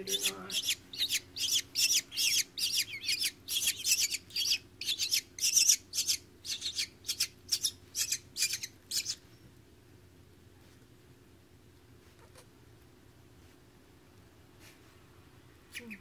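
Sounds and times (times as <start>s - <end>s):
nestling hawks squealing: 0.0s - 9.2s.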